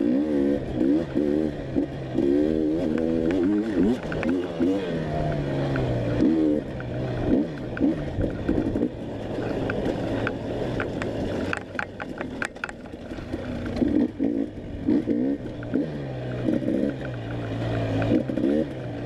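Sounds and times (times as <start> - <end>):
dirt bike engine revving: 0.0 - 19.0
sharp clicks and knocks: 2.8 - 6.0, 6.7 - 14.4, 16.4 - 18.6.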